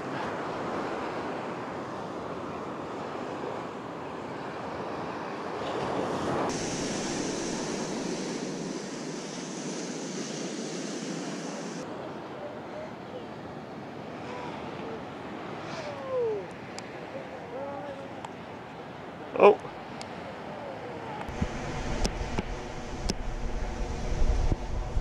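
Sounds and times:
surf washing on beach: 0:00.0 - 0:25.0
wind on microphone: 0:05.8 - 0:12.0, 0:20.1 - 0:25.0.

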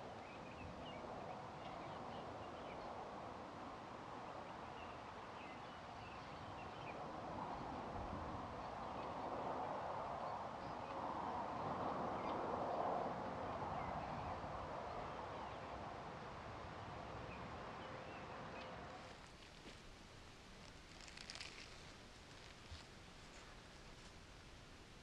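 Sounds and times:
wind rustling through trees: 0:00.0 - 0:25.0.

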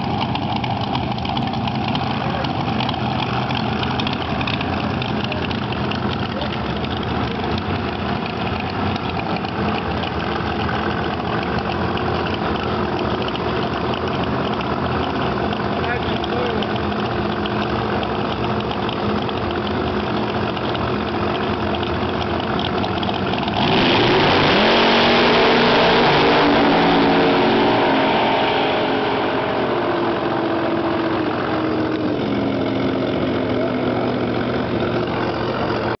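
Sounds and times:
drag car engine idling: 0:00.0 - 0:36.0
drag car launching full throttle: 0:23.5 - 0:36.0.

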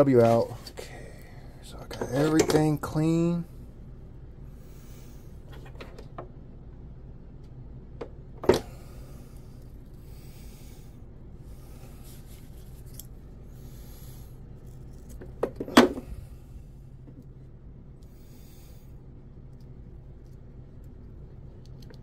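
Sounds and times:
soft rubbing and handling noises: 0:00.0 - 0:01.0, 0:08.9 - 0:22.0
steady low hum: 0:00.0 - 0:22.0.

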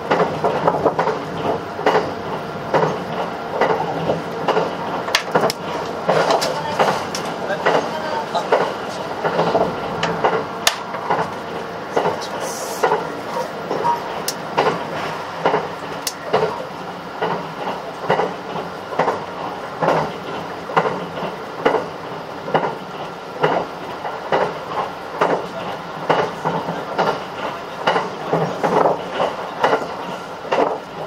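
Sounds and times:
train car rumble: 0:00.0 - 0:31.0
wheels clacking over rail joints: 0:00.0 - 0:31.0.

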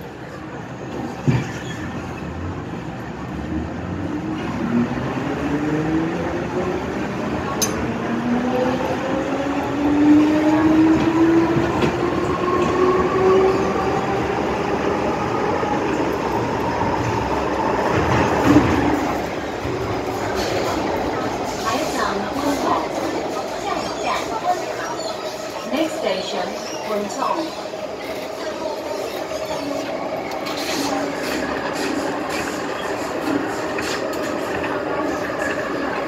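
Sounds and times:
train running rumble: 0:00.6 - 0:36.0.

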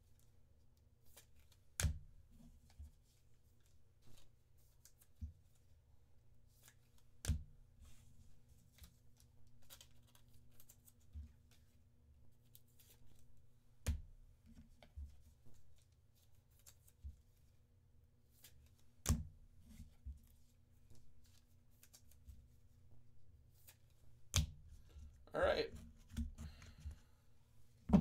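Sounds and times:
cards rustling: 0:08.6 - 0:11.8, 0:19.7 - 0:22.6.

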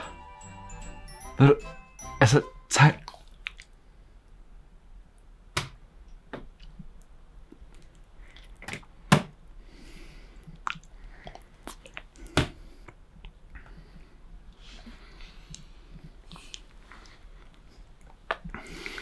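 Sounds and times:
wet mouth smacks: 0:03.0 - 0:03.8, 0:10.6 - 0:12.2.

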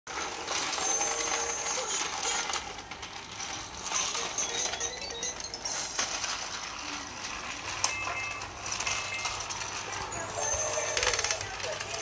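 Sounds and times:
toy playing electronic tune: 0:00.6 - 0:02.7, 0:03.8 - 0:06.4, 0:07.5 - 0:12.0.

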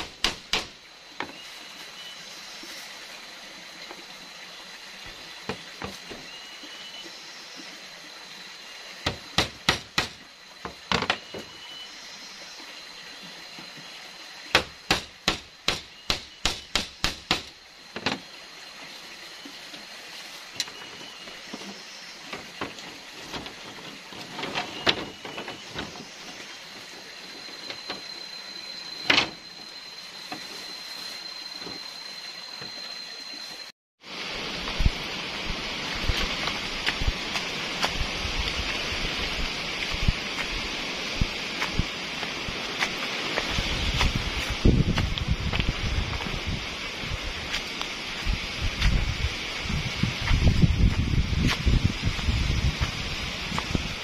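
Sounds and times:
machete chopping bamboo: 0:00.0 - 0:00.8, 0:09.1 - 0:10.2, 0:14.5 - 0:17.6
wind through leaves: 0:00.0 - 0:54.0.

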